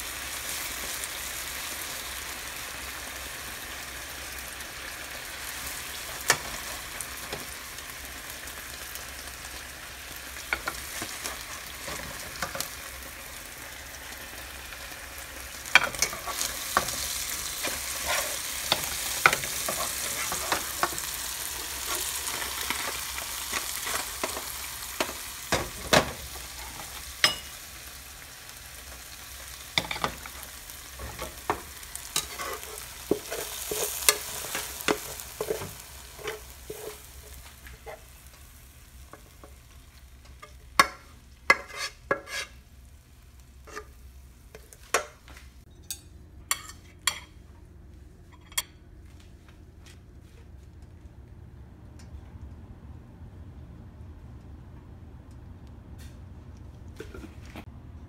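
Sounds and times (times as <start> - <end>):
metal spatula scraping a pan: 15.8 - 22.9, 32.1 - 37.1, 41.5 - 42.6, 43.6 - 44.0.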